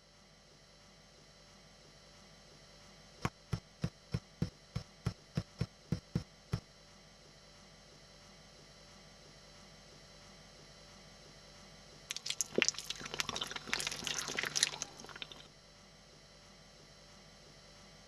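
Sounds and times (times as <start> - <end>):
faint steady hum: 0.0 - 18.0
soft quick footsteps: 3.2 - 6.6.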